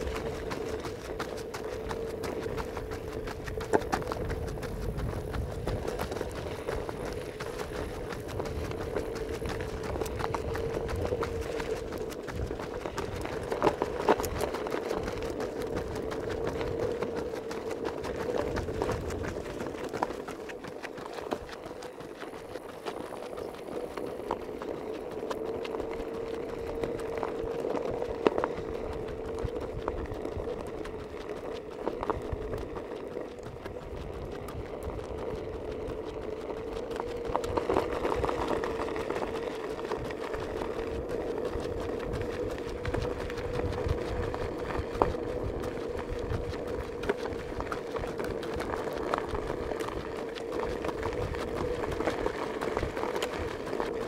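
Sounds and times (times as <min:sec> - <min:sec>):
footsteps on dirt road: 0:00.0 - 0:54.0
steady mechanical hum: 0:00.0 - 0:54.0.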